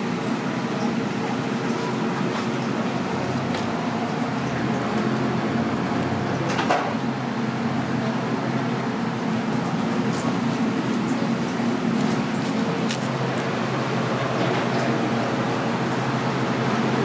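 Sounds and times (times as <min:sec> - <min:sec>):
steady mechanical hum: 0:00.0 - 0:17.0
street background noise: 0:00.0 - 0:17.0.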